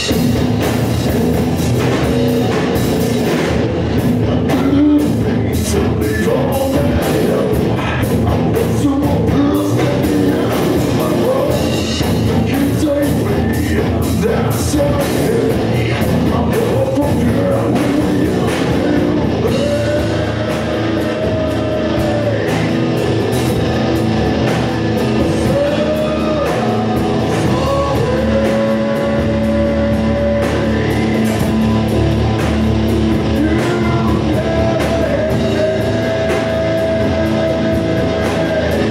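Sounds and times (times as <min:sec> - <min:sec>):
bass guitar: 0:00.0 - 0:38.9
drum kit: 0:00.0 - 0:38.9
electric guitar: 0:00.0 - 0:38.9
person singing into microphone: 0:04.3 - 0:23.1, 0:25.0 - 0:32.0, 0:33.1 - 0:38.9.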